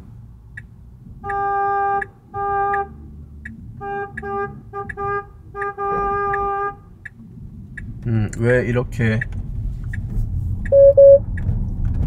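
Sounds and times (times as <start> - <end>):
turn signal clicking: 0.5 - 11.8
car horn honking: 1.2 - 3.0, 3.8 - 6.9.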